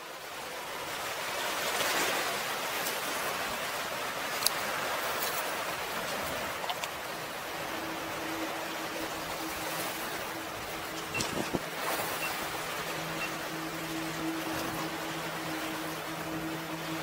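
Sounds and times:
surf washing over rocks: 0:00.0 - 0:17.0.

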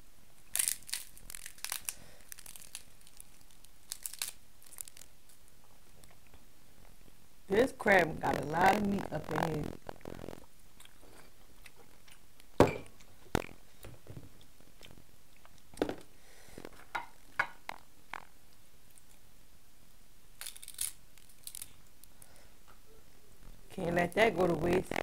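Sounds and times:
shell and meat tearing: 0:00.5 - 0:05.4, 0:20.4 - 0:21.8
crab shell cracking: 0:00.5 - 0:06.2, 0:09.0 - 0:13.9, 0:20.4 - 0:22.3.

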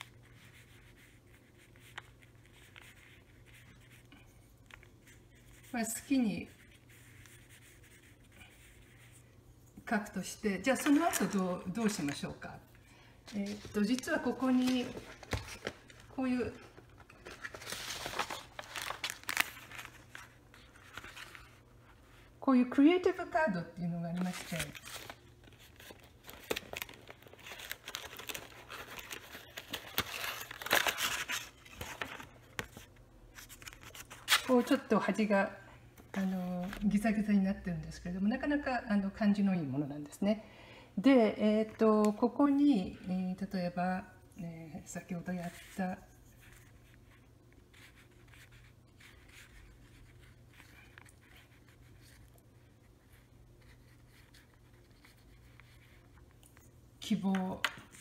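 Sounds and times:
brush swishing on paper: 0:00.0 - 0:09.3
low steady hum: 0:00.0 - 0:58.0
paper rustling and crinkling: 0:10.7 - 0:12.3, 0:13.3 - 0:22.3, 0:24.0 - 0:34.9, 0:45.0 - 0:58.0.

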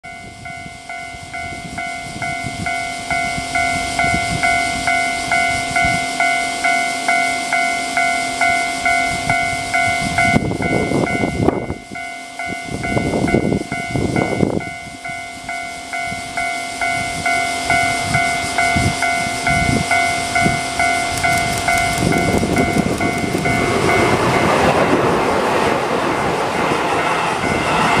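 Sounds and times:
electric train approaching: 0:00.0 - 0:28.0
level-crossing warning bell: 0:00.0 - 0:28.0
low rumbling noise: 0:15.8 - 0:28.0.

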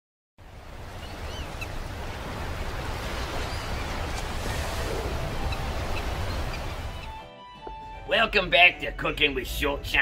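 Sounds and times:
rushing outdoor noise: 0:00.4 - 0:07.2.

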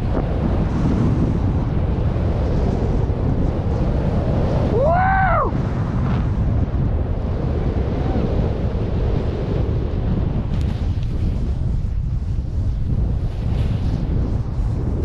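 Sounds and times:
wind rushing over microphone: 0:00.0 - 0:15.0
person whooping: 0:04.7 - 0:05.6.

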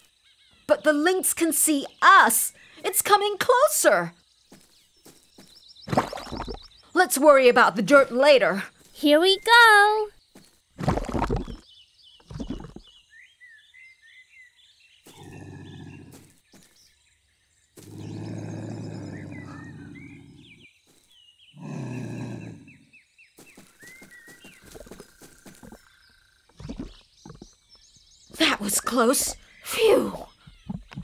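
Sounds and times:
birds chirping: 0:00.0 - 0:31.0
heavy plop into mud: 0:05.9 - 0:06.6
lynx growling: 0:15.1 - 0:16.2, 0:17.8 - 0:20.7, 0:21.5 - 0:22.8.

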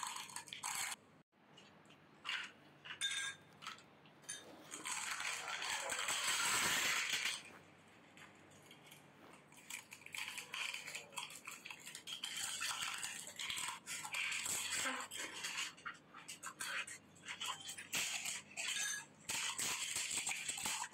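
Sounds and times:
spoons clinking against glass bowls: 0:02.4 - 0:05.0, 0:09.6 - 0:20.9.

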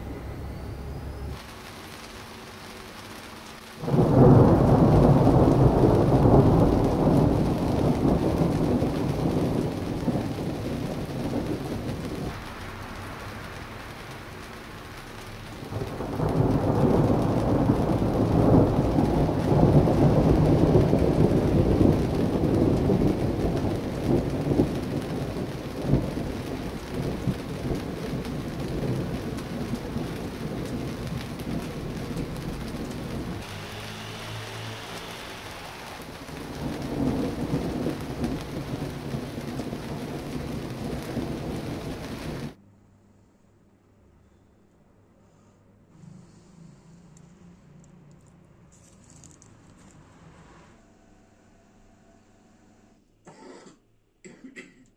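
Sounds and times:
steady rain: 0:00.0 - 0:42.6, 0:46.6 - 0:50.6
distant thunder rolling: 0:03.8 - 0:42.6.

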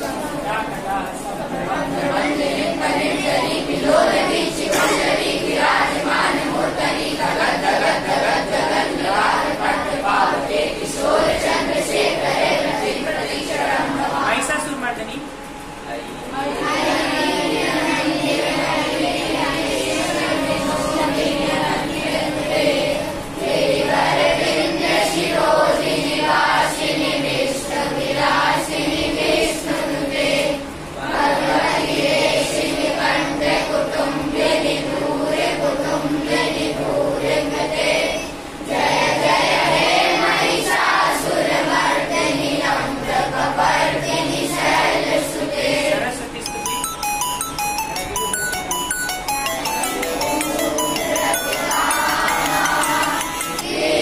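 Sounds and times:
children singing in unison: 0:01.7 - 0:14.2, 0:16.4 - 0:45.9, 0:49.9 - 0:54.0.

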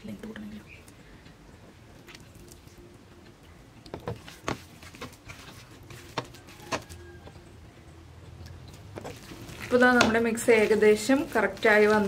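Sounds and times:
batter worked in steel bowl: 0:03.9 - 0:07.4, 0:08.6 - 0:12.0.

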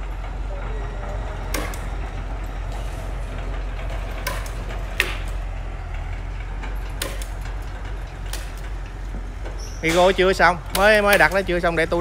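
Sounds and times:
low engine-like rumble: 0:00.0 - 0:12.0
sharp knocks: 0:03.9 - 0:05.4.

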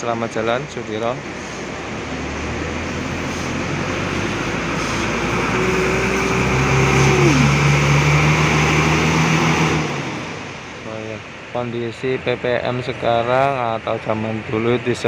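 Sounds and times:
bus diesel engine running: 0:00.0 - 0:13.6
deeper hum: 0:01.2 - 0:11.5
steady whine sliding down: 0:01.4 - 0:11.3.

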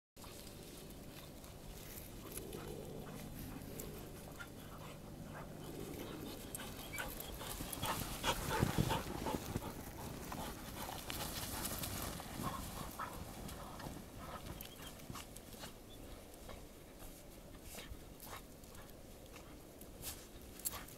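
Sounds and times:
dogs panting: 0:00.2 - 0:20.9
paws crunching in snow: 0:00.2 - 0:20.9.

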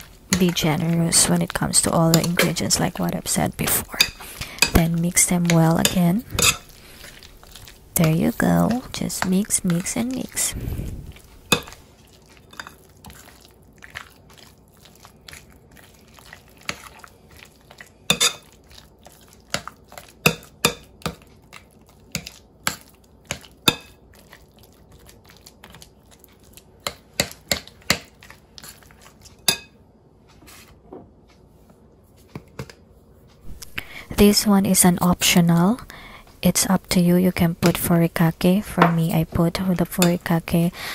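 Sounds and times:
fork clinking against ceramic bowl: 0:05.8 - 0:06.7.

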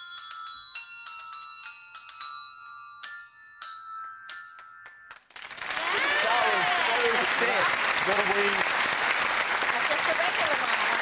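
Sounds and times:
tuned bells melody: 0:00.0 - 0:05.3
applause: 0:05.1 - 0:11.0.

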